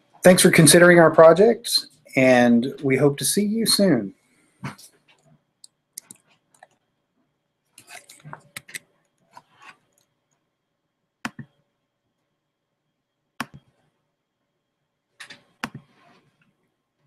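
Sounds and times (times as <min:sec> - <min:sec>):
computer mouse clicks: 0:05.1 - 0:06.8, 0:11.3 - 0:11.5, 0:15.2 - 0:16.5.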